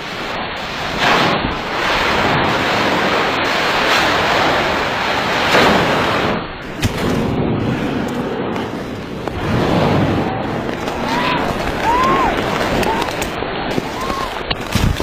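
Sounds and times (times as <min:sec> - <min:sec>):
rushing roar of noise: 0:07.0 - 0:14.6.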